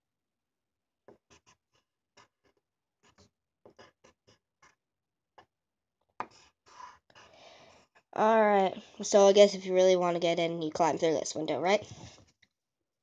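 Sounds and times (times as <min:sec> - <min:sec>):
colored pencil scratching on paper: 0:01.1 - 0:04.8, 0:06.2 - 0:08.1.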